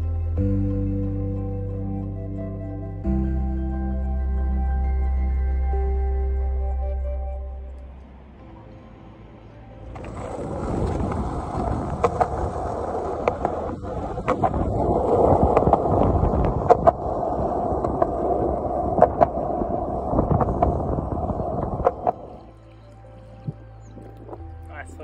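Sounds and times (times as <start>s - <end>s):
skateboard wheels rolling on concrete: 8.0s - 25.0s.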